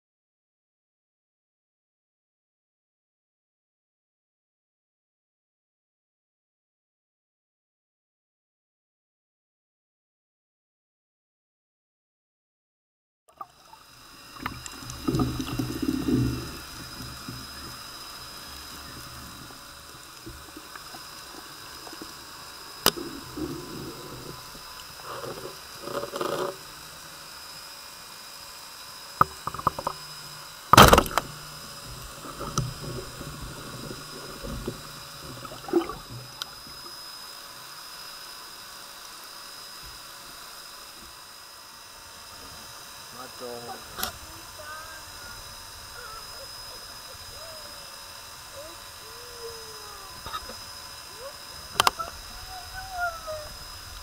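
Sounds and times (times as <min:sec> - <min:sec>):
underwater hiss: 0:13.3 - 0:54.0.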